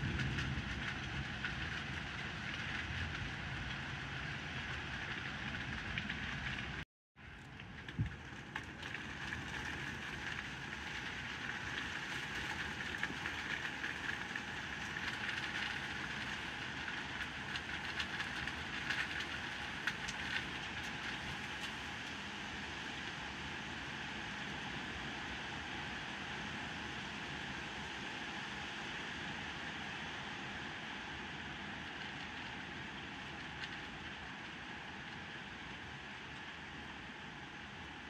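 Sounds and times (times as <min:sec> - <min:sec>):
heavy rain pouring: 0:00.0 - 0:06.8, 0:08.2 - 0:22.1.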